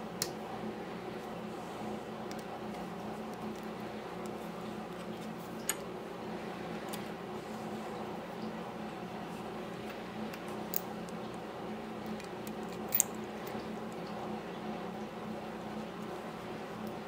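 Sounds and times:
low background hum: 0.0s - 17.0s
small metal parts clicking: 12.1s - 13.2s.

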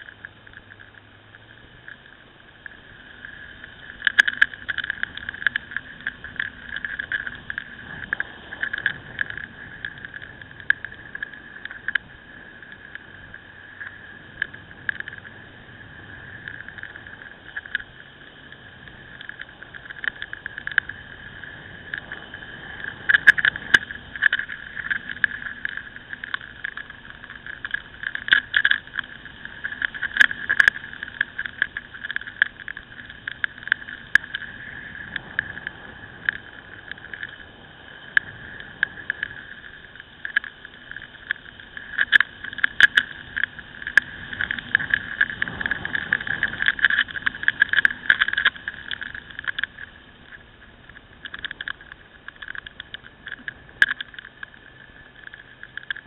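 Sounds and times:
muffled wind and road noise: 0.0s - 56.0s
rattling clicks: 16.4s - 56.0s.

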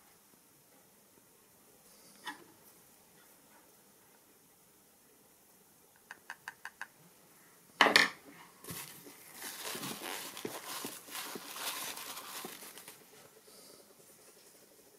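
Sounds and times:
paper towel rustling: 8.6s - 13.2s.

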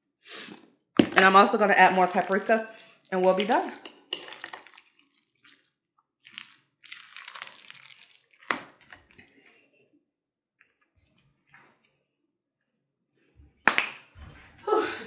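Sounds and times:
spoon squishing through potato salad: 2.6s - 9.7s.

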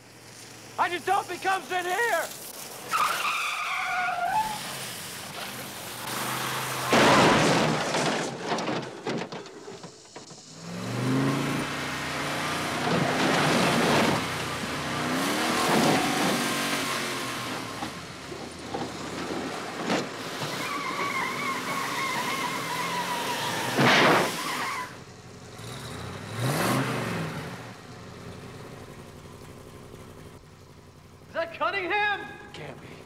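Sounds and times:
car crash: 2.2s - 31.2s
car engine revving: 4.4s - 7.9s, 10.4s - 31.4s.

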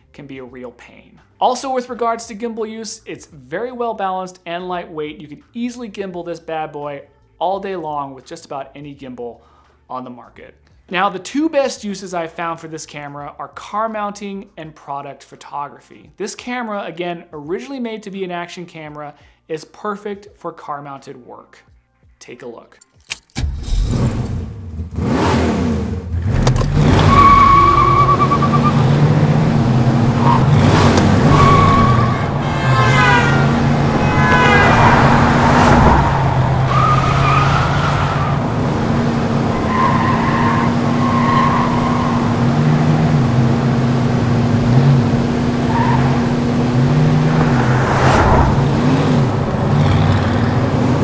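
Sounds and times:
car engine running: 25.9s - 51.0s
tyres squealing: 26.8s - 51.0s.

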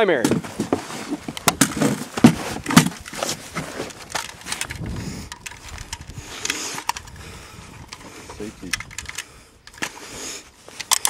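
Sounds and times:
gear rustling: 0.3s - 11.0s
rifle clacks: 4.0s - 7.2s, 8.6s - 10.0s, 10.7s - 11.0s.

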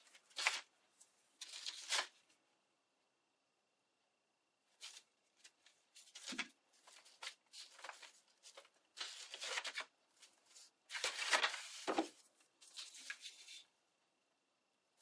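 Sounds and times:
paper rustling and crinkling: 0.0s - 2.4s, 4.7s - 13.7s.

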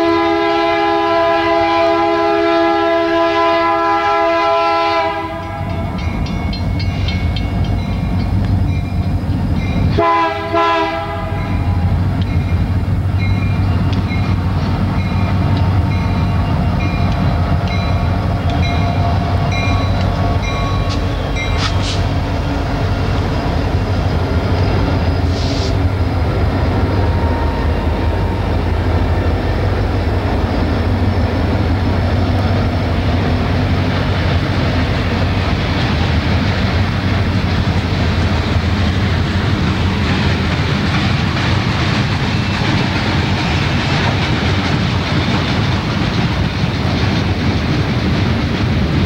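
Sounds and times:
diesel locomotive engines running: 0.0s - 49.0s
train wheels clickety-clack on rails: 0.0s - 49.0s.

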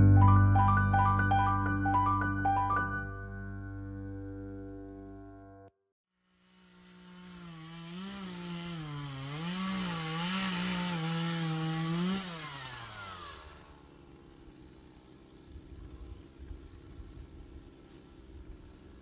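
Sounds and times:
chainsaw revving: 6.2s - 19.0s.

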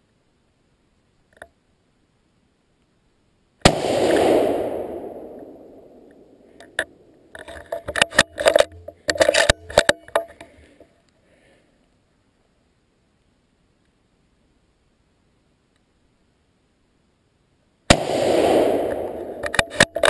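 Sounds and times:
very loud bang: 3.6s - 5.8s.

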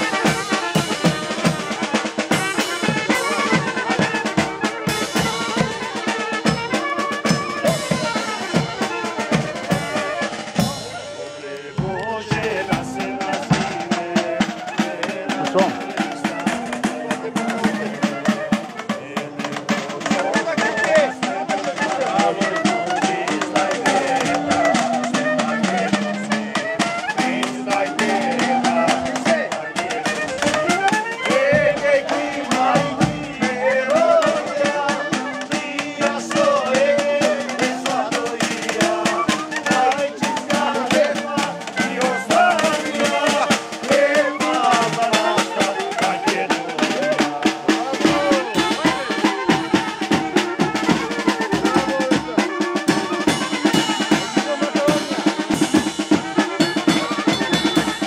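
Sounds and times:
clarinet: 0.0s - 58.0s
saxophone: 0.0s - 58.0s
snare drum: 0.0s - 58.0s
trumpet: 0.0s - 58.0s
bass drum beats: 11.8s - 46.4s.

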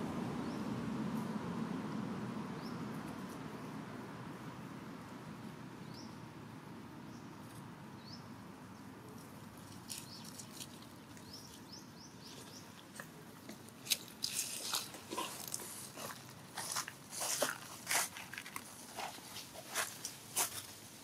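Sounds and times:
dry leaves crackling and rustling: 12.3s - 21.0s.

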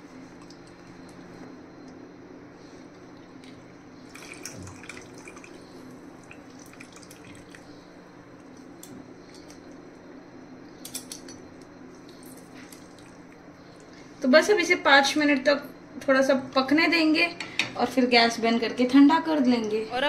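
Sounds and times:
juice dripping into water: 3.4s - 7.8s, 11.9s - 14.0s.

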